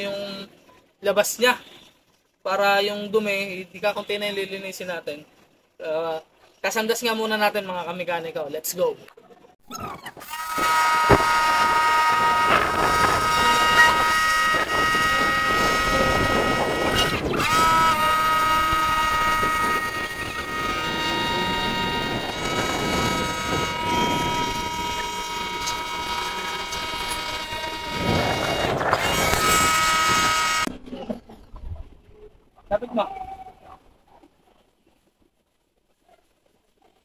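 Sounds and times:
high machine whine: 0:10.2 - 0:31.0.

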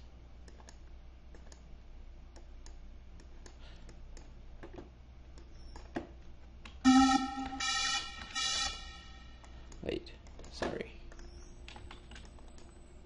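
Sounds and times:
computer mouse clicks: 0:00.4 - 0:01.7, 0:02.3 - 0:04.4, 0:09.4 - 0:12.8
synth tone with hiss: 0:06.9 - 0:08.2.

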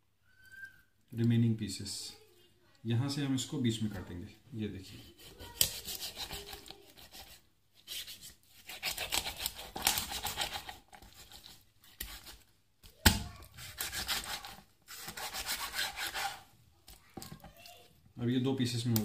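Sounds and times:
knife sawing through raw chicken: 0:05.0 - 0:12.4, 0:13.5 - 0:16.5.

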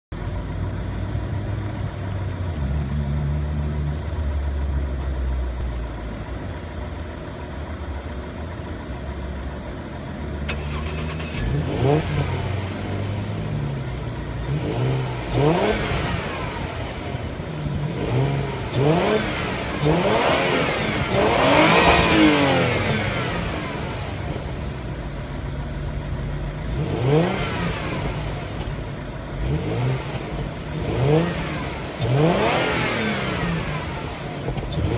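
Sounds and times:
car engine idling and revving: 0:00.1 - 0:34.9.

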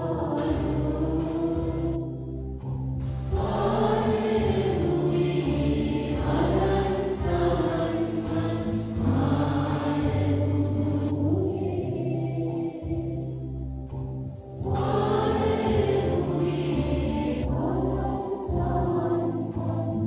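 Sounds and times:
children singing a hymn: 0:00.0 - 0:02.1, 0:03.3 - 0:13.3, 0:14.6 - 0:20.0
low musical accompaniment: 0:00.0 - 0:20.0.

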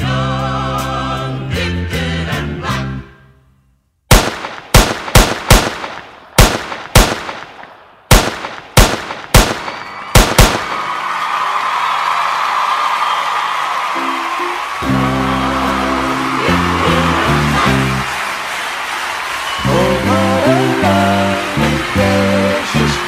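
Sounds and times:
music with singing voice: 0:00.0 - 0:03.2, 0:14.8 - 0:18.2, 0:19.6 - 0:23.0
gunshots with ringing tail: 0:04.1 - 0:11.0
crowd cheering: 0:09.2 - 0:23.0.

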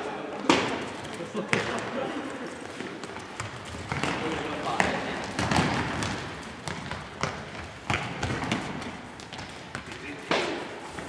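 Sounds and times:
players' running feet: 0:00.0 - 0:11.0
football kicked and bouncing: 0:00.4 - 0:02.0, 0:02.8 - 0:10.5.

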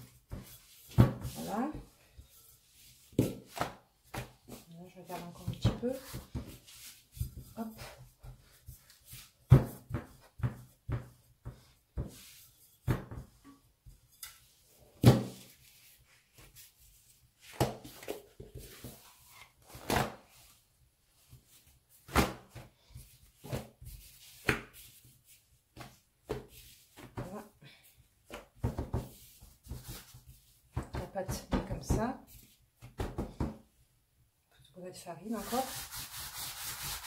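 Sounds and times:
hands thumping bread dough: 0:03.1 - 0:14.0, 0:28.3 - 0:32.2, 0:32.8 - 0:33.7.

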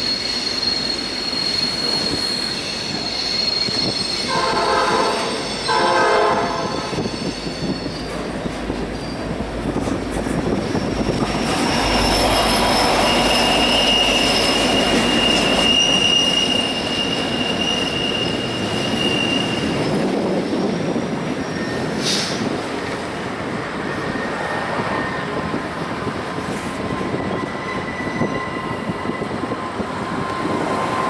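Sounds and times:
high-pitched wheel squeal: 0:00.0 - 0:09.4, 0:10.7 - 0:20.1, 0:26.8 - 0:31.0
train rumbling on rails: 0:00.0 - 0:31.0.

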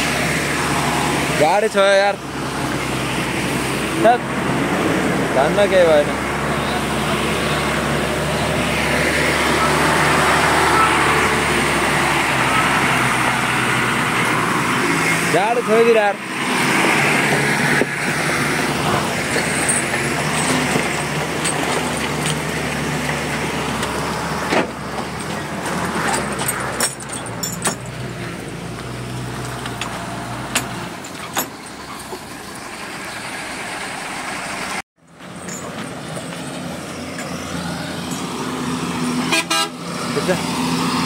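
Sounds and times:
truck engines droning: 0:00.0 - 0:41.0
scattered clicks and knocks: 0:19.2 - 0:28.0.

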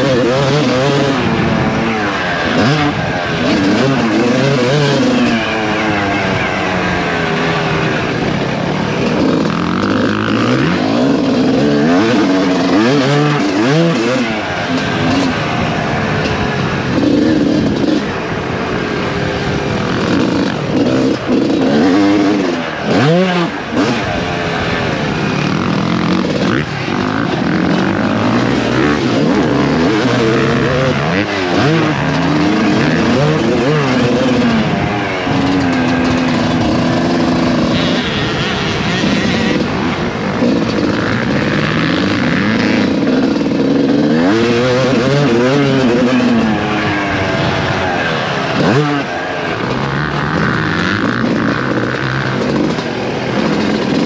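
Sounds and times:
motocross engine revving: 0:00.0 - 0:54.0.

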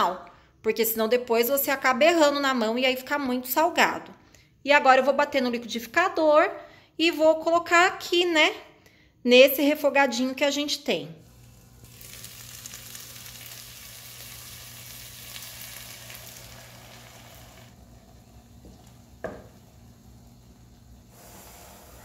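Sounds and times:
meat sizzling in a pot: 0:11.2 - 0:22.0.

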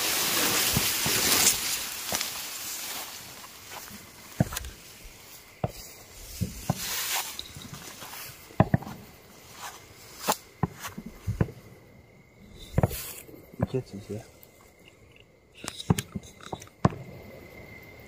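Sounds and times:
dry grass rustling: 0:00.0 - 0:11.6, 0:12.5 - 0:13.3
footsteps crunching: 0:00.0 - 0:11.6.

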